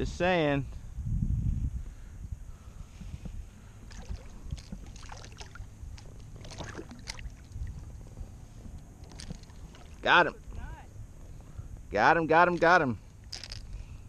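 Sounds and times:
low steady rumble: 0.0s - 14.0s
fish splashing at water surface: 3.9s - 8.0s.

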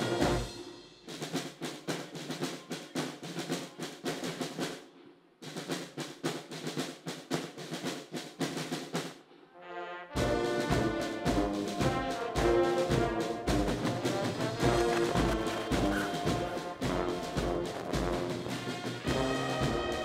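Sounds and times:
brass band playing: 0.0s - 1.1s, 9.5s - 20.0s
snare drums marching cadence: 0.0s - 20.0s.

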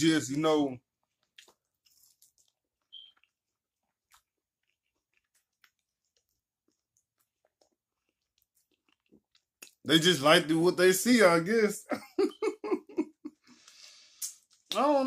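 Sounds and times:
person chewing: 0.9s - 9.9s, 13.3s - 14.8s.

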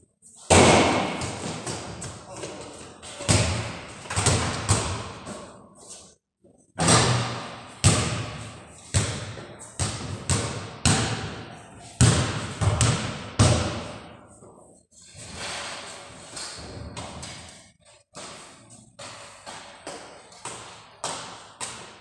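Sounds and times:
basketballs bouncing on hard floor: 0.5s - 5.5s, 6.8s - 14.1s, 18.2s - 22.0s.

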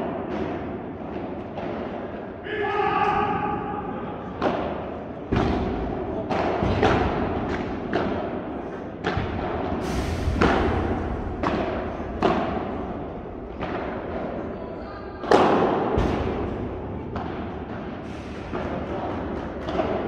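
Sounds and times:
racket hitting ball: 4.4s - 9.8s, 10.4s - 14.6s, 15.2s - 20.0s.

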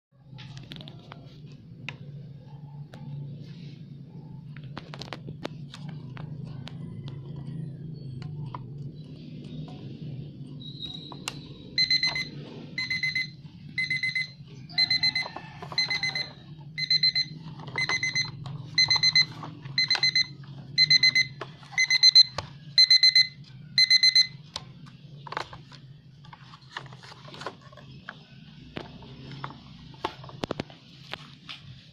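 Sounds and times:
alarm clock beeping: 10.9s - 24.4s.

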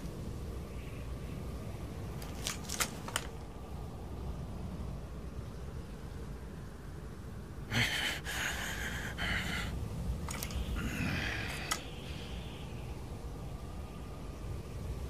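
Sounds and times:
hissing breath: 7.7s - 12.4s
sharp clicks: 10.3s - 10.8s, 11.5s - 11.9s.

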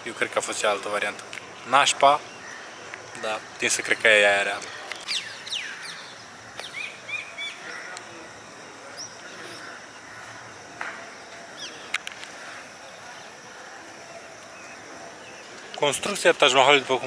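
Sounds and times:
faint outdoor background: 0.0s - 17.0s
birds chirping and whistling: 5.0s - 7.8s.

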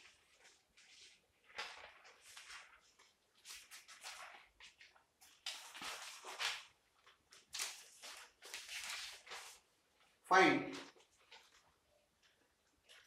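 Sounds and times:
paper rustling and crackling: 0.0s - 10.2s.

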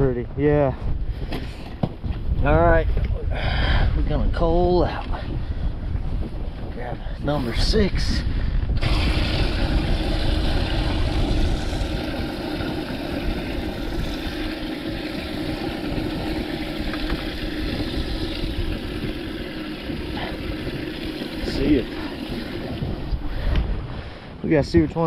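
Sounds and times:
wind rumble on microphone: 0.0s - 25.0s
small motor humming: 8.8s - 23.6s.

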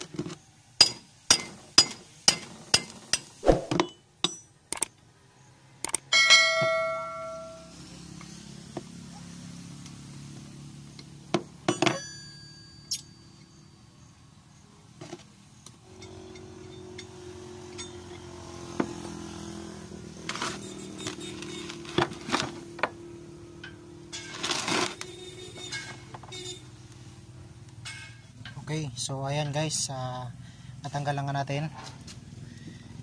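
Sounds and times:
metal clinks and knocks: 25.2s - 26.6s.

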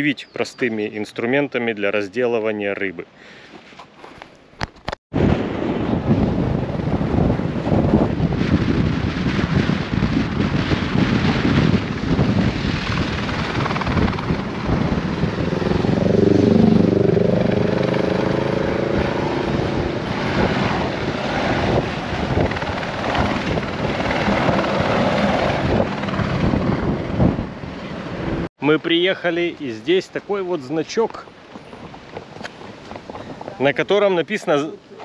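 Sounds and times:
helicopter flying low: 5.6s - 28.5s
pitched drone dipping and rising: 13.4s - 28.5s
car road noise: 14.3s - 22.6s.

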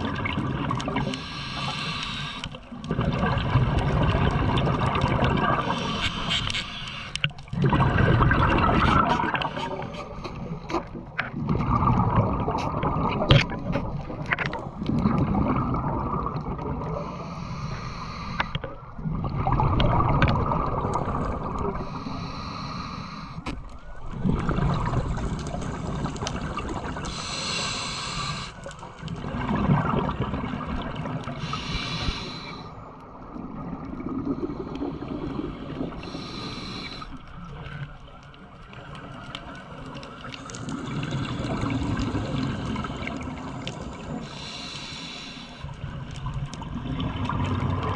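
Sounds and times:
exhaled air bubbling underwater: 0.0s - 47.9s
regulator hiss: 1.1s - 2.5s, 17.0s - 18.6s, 27.1s - 28.6s, 31.4s - 32.8s, 36.0s - 37.2s, 44.0s - 45.7s.

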